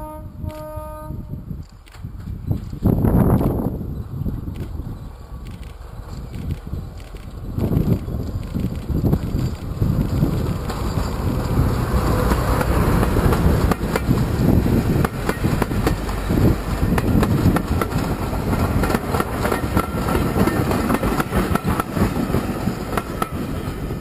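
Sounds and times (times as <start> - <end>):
diesel locomotive engine running: 1.4 - 24.0
train wheels clattering over rail joints: 5.4 - 24.0.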